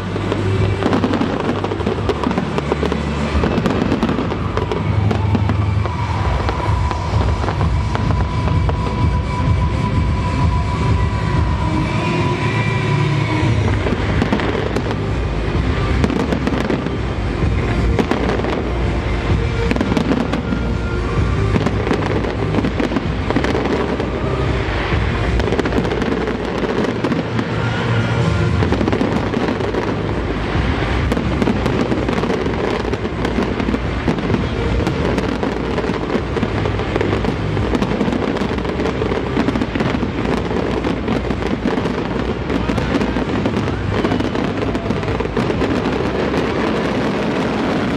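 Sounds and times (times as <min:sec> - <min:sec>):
fireworks bangs and crackles: 0:00.0 - 0:47.9.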